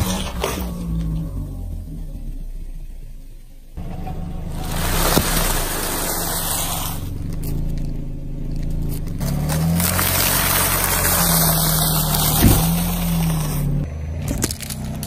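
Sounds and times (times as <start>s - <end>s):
car engine running low: 0.0s - 15.0s
tyre crushing popcorn bag: 4.5s - 15.0s
crackers crunching and snapping: 7.1s - 15.0s.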